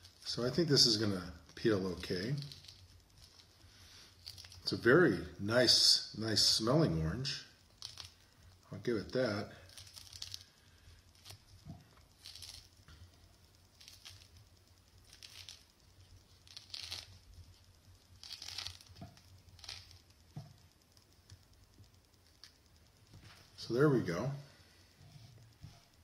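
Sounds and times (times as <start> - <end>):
fingers peeling mandarin: 0.0 - 4.8, 7.6 - 22.8
peel tearing and crinkling: 1.7 - 3.5, 4.2 - 4.7, 7.8 - 8.3, 9.6 - 12.8, 13.7 - 14.4, 15.0 - 20.1.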